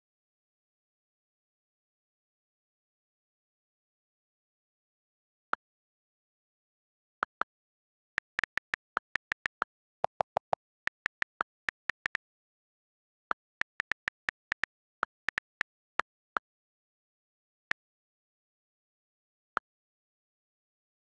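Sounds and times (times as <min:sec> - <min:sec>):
on-screen keyboard key clicks: 0:08.2 - 0:12.2, 0:13.3 - 0:15.6.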